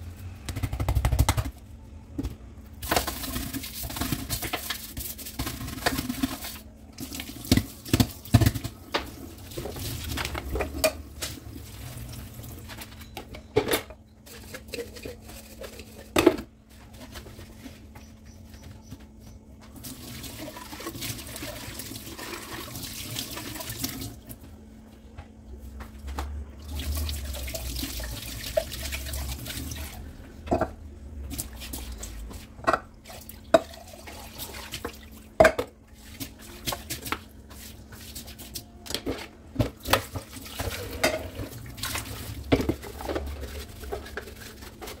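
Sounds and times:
tap water running: 19.6s - 24.4s, 26.6s - 30.7s
brush scrubbing sink: 31.2s - 35.0s, 35.9s - 38.7s, 39.9s - 45.0s
dishes knocking and clattering: 35.4s - 35.8s.

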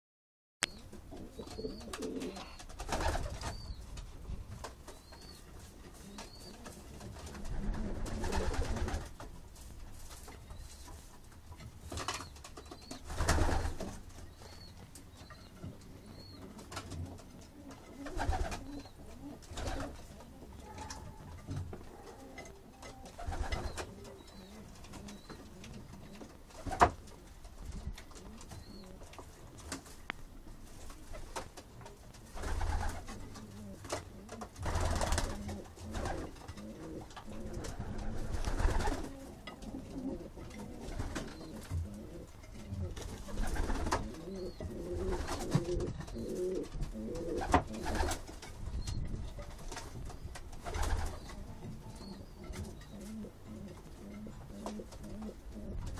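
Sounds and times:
pigeons cooing: 1.1s - 3.7s, 15.4s - 29.1s, 32.5s - 48.2s, 50.7s - 55.9s
wing flaps and rustling: 1.1s - 15.8s, 16.4s - 55.9s.

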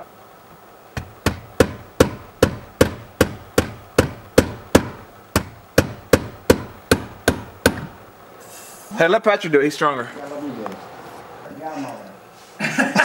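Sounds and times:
rubber mallet tapping: 1.0s - 8.1s.

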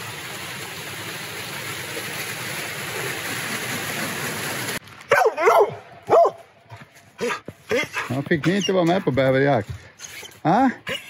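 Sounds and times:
stream rushing over rocks: 0.0s - 4.8s.

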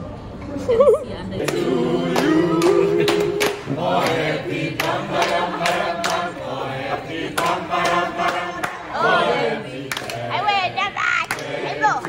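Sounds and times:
people clapping in time: 1.4s - 9.0s, 9.7s - 10.3s, 11.2s - 11.6s
group singing: 1.4s - 12.0s.

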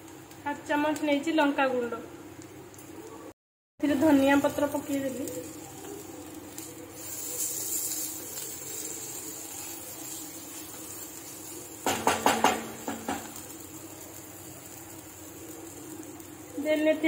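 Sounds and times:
spatula knocking against pan: 11.8s - 13.4s.

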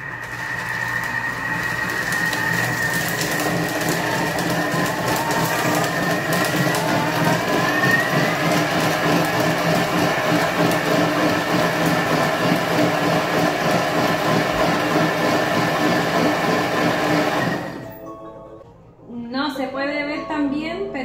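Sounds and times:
food processor motor whine: 0.0s - 18.0s.

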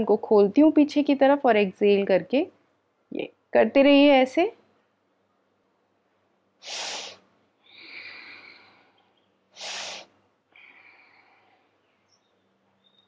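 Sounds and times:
woman breathing: 6.6s - 11.8s.

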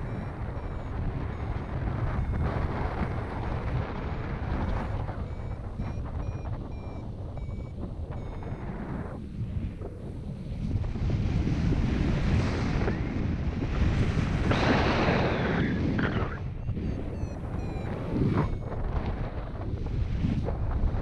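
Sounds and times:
short electronic beeps: 0.0s - 9.2s, 16.1s - 18.8s
wind rushing over microphone: 0.0s - 21.0s.

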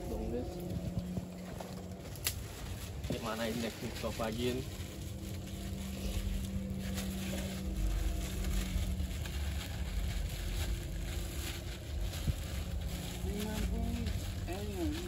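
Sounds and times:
wind on microphone: 0.0s - 5.5s
low engine hum: 0.0s - 15.0s
plastic bag crinkling: 0.1s - 15.0s.

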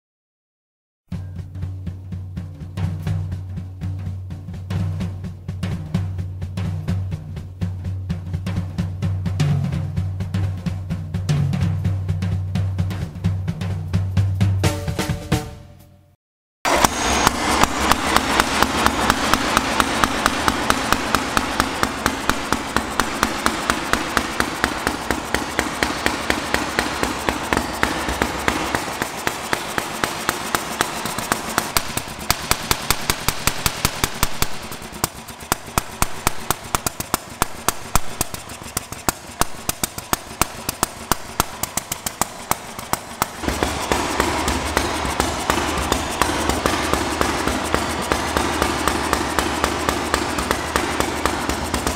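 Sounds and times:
motorcycle engine idling: 16.7s - 51.9s.

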